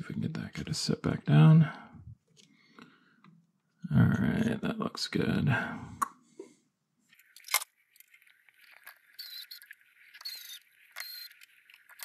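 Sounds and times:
electric screwdriver motor whirring: 9.2 - 12.0.

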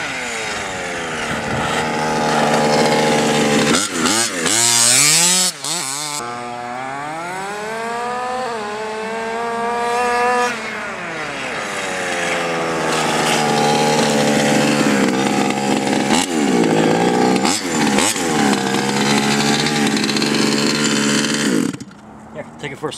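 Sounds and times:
small two-stroke engine revving: 0.0 - 22.2.

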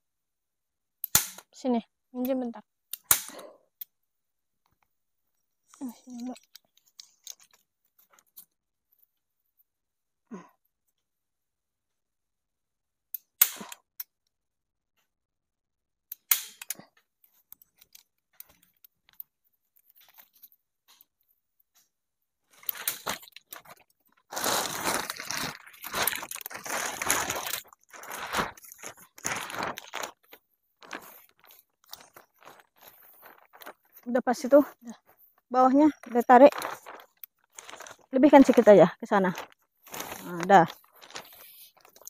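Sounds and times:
plastic tarp rustling: 22.5 - 42.0.

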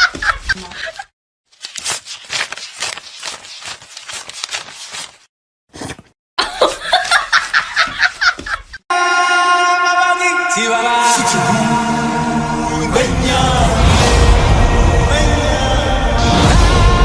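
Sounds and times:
person laughing ha-ha: 0.0 - 1.1, 6.4 - 8.8
person snickering: 0.0 - 1.1, 6.4 - 8.8.

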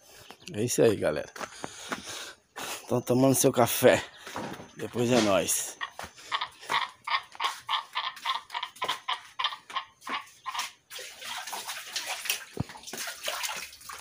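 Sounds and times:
pigs slurping: 7.6 - 14.0
water running from hose: 10.5 - 14.0.

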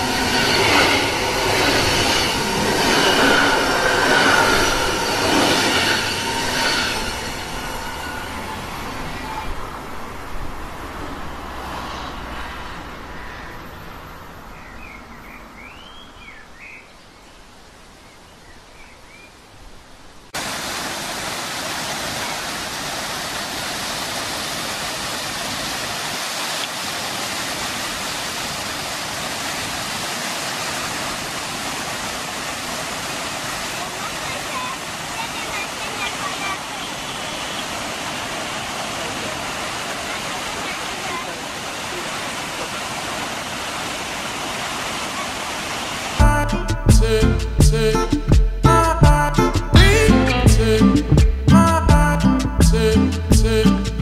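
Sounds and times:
waterfall rushing: 0.0 - 13.2, 20.3 - 47.2
electric train passing: 0.0 - 14.5
faint bird chirps: 14.5 - 19.4.

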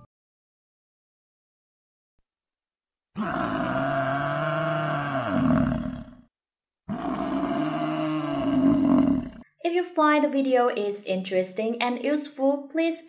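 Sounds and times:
deep animal bellow: 3.2 - 6.3, 6.9 - 9.4.

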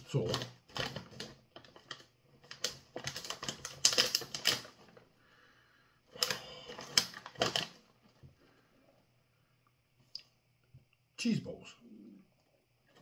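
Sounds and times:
plastic snack bag crinkling: 0.0 - 5.1, 6.1 - 8.3.

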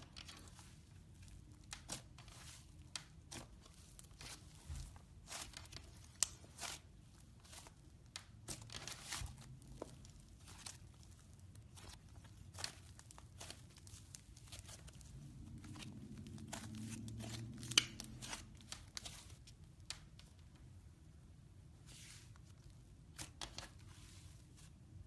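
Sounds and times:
sticky slime crackling: 0.0 - 20.5.

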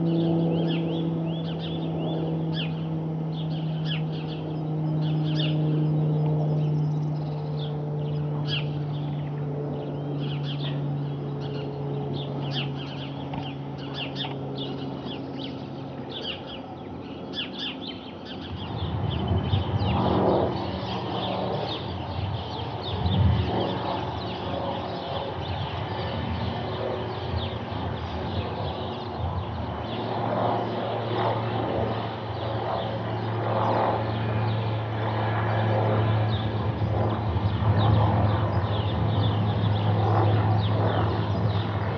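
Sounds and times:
propeller aeroplane drone: 0.0 - 41.9
small birds chirping: 0.0 - 41.9.

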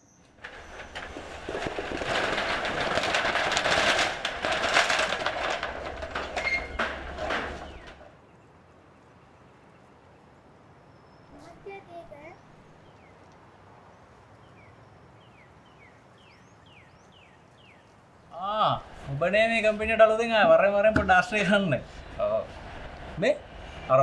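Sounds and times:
metal roller shutter rattling: 0.4 - 8.1.

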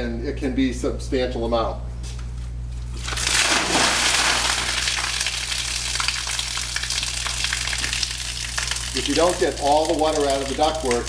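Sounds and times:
water gushing onto concrete: 3.0 - 11.0.

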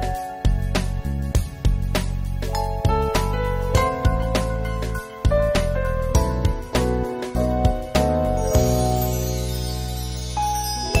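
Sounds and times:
melody over bass line: 2.5 - 11.0.

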